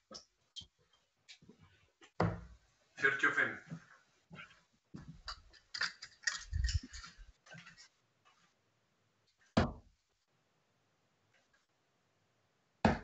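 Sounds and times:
dart hitting board thud: 9.6 - 9.9.

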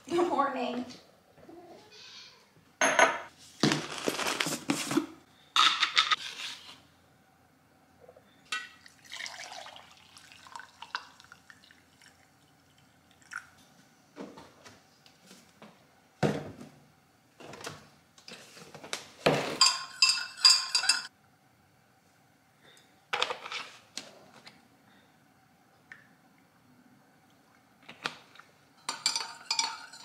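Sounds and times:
spoon clinking stirring coffee: 19.6 - 21.1, 28.8 - 30.0
spoon scraping in ceramic mug: 19.6 - 21.1.

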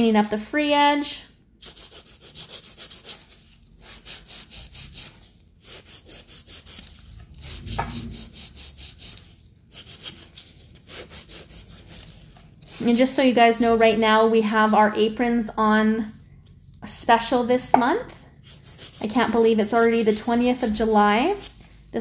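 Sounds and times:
nail file rasping: 1.6 - 3.2, 3.8 - 6.8, 10.9 - 12.1, 18.5 - 21.6.

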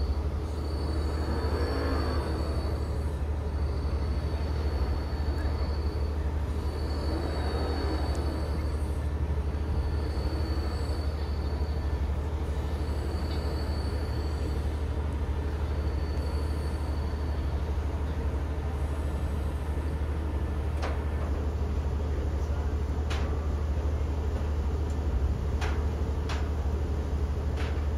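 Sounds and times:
faint high whine: 0.0 - 19.6
ride machinery low hum: 0.0 - 27.9.

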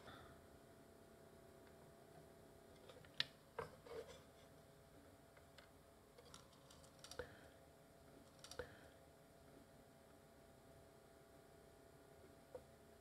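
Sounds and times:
small tools clicking and tapping: 8.3 - 8.8.

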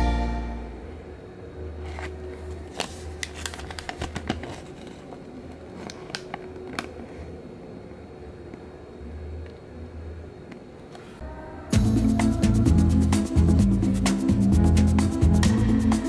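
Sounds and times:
steady low hum: 0.0 - 3.7, 4.4 - 16.0
paper leaflet crinkling: 1.9 - 5.2.

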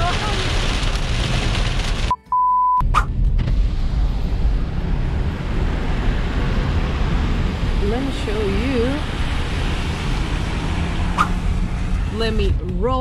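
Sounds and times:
rain on car windshield: 0.0 - 2.1, 3.4 - 13.0
electronic beep: 2.1 - 2.8
steady low rumble: 2.8 - 13.0.

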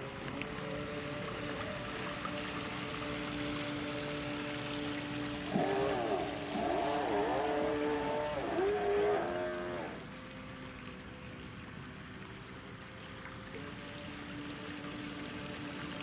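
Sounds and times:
model boat motor whine: 0.0 - 16.0.

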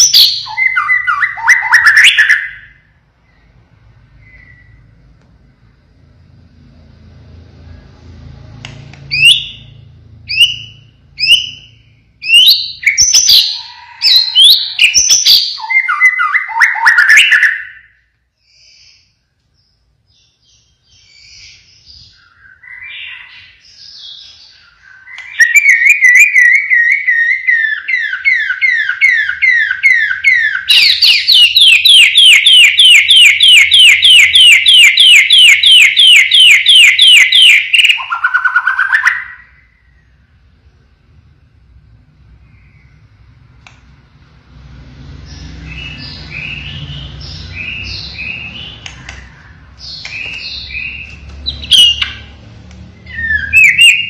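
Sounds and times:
bird singing loudly: 0.0 - 2.9, 9.1 - 40.1, 45.3 - 52.3, 53.0 - 54.0
fast run of sharp bird notes: 20.8 - 40.1, 44.4 - 54.0.

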